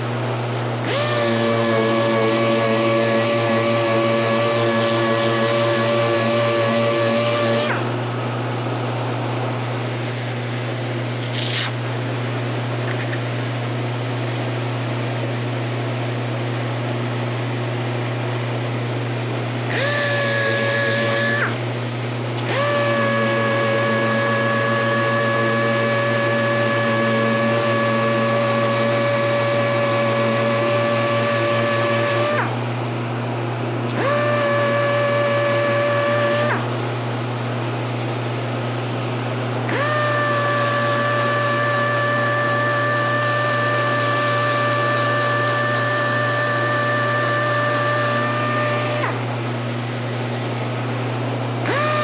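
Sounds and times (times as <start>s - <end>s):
constant low hum: 0.0s - 52.0s
orbital sander whine: 0.8s - 8.0s, 19.7s - 21.7s, 22.4s - 32.6s, 33.9s - 36.7s, 39.6s - 49.3s, 51.6s - 52.0s.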